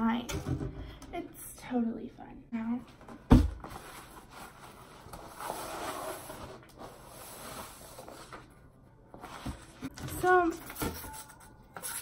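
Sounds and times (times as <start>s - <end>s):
cardboard rustling and scraping: 3.6s - 8.5s, 9.1s - 11.2s.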